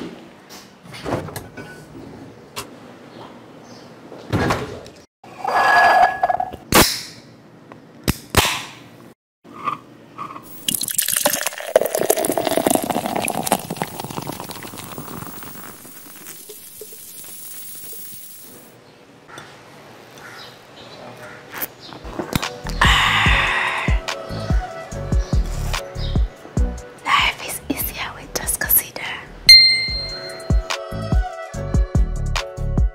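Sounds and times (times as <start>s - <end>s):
cider pouring into glass: 10.5s - 18.3s.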